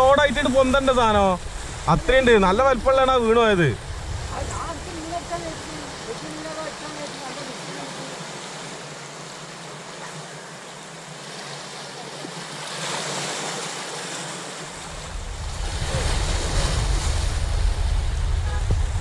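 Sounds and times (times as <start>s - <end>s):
wind buffeting microphone: 0.0s - 7.0s, 14.6s - 19.0s
waves breaking over rocks: 0.0s - 19.0s.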